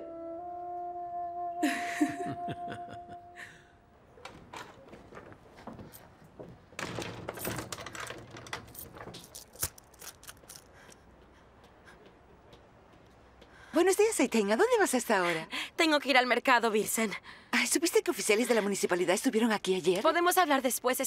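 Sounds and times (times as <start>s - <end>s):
person laughing: 1.6s - 3.6s
light footsteps: 4.1s - 15.5s
wooden door clicks and knocks: 4.2s - 9.3s.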